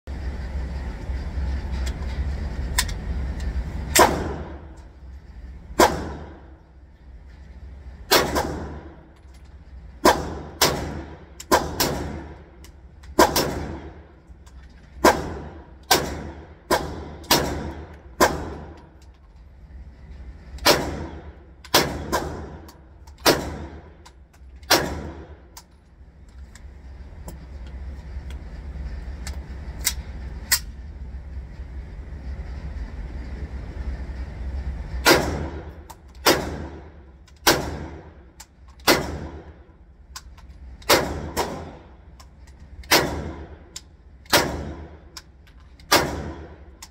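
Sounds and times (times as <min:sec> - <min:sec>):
pistol shots ringing indoors: 0:03.9 - 0:04.8, 0:05.8 - 0:06.6, 0:08.1 - 0:09.1, 0:10.0 - 0:14.2, 0:15.0 - 0:19.0, 0:20.5 - 0:25.5, 0:35.0 - 0:39.7, 0:40.8 - 0:42.1, 0:42.8 - 0:45.2, 0:45.8 - 0:46.9.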